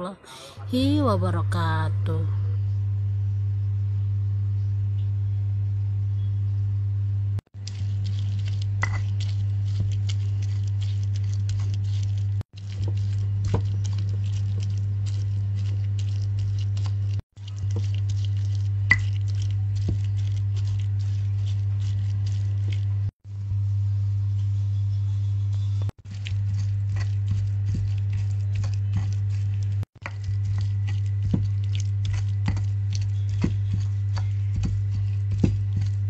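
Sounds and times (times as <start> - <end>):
steady low hum: 0.0 - 36.0
stone pestle grinding in mortar: 7.6 - 23.0, 26.0 - 36.0.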